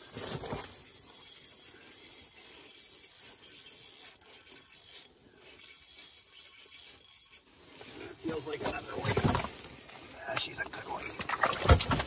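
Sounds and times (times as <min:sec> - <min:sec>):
fishing reel clicking: 0:01.2 - 0:07.5.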